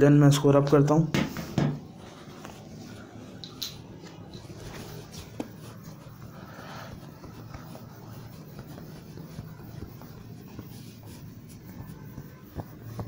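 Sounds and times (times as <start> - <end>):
duster rubbing on whiteboard: 4.4 - 13.0.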